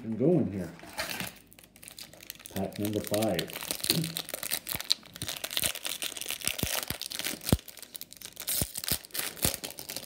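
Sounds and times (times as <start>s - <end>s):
foil wrapper tearing and crinkling: 1.0s - 10.0s.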